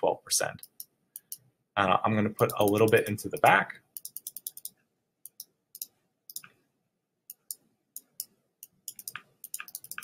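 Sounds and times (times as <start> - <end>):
computer mouse clicking: 2.4 - 6.6, 7.3 - 10.0.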